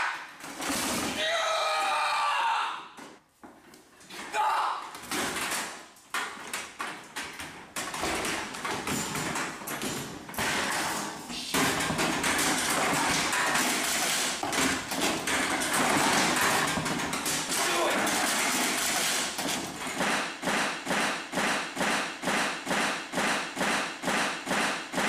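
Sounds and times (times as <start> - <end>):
metal folding chairs clattering: 5.0 - 20.0.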